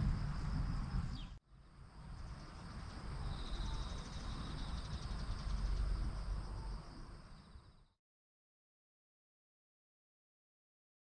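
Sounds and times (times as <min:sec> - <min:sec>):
low rumble: 0:00.0 - 0:01.4
insects trilling: 0:02.4 - 0:07.8.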